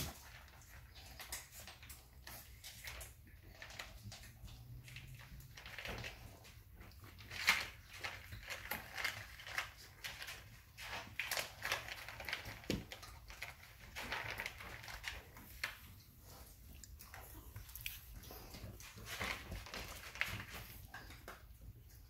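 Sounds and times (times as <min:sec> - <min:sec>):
kibble clicking on wooden floor: 0:00.0 - 0:21.8
puppies crunching kibble: 0:00.0 - 0:22.0.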